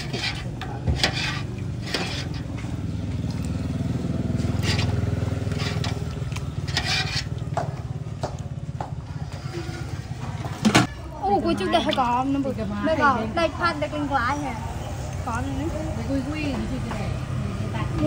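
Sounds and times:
soup pouring splashes: 1.4s - 7.8s.

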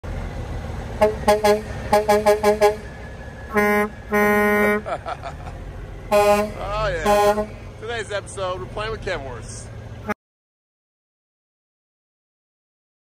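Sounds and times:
truck horn toots: 0.9s - 5.0s, 6.0s - 7.8s.

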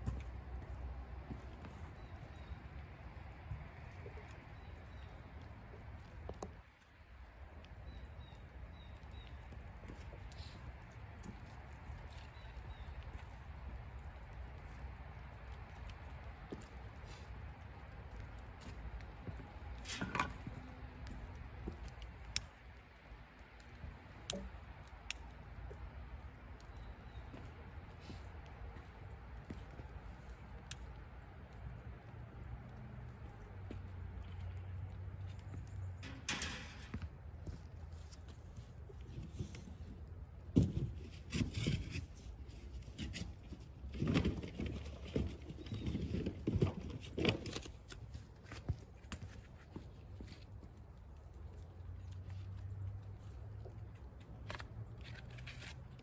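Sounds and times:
wood fire crackling: 0.0s - 40.6s.

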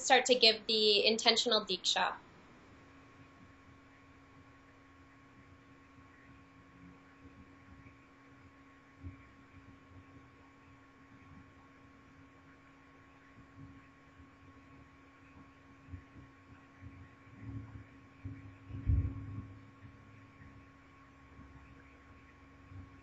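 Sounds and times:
steady electrical hum: 0.0s - 23.0s
soft low thumps: 15.9s - 20.1s.

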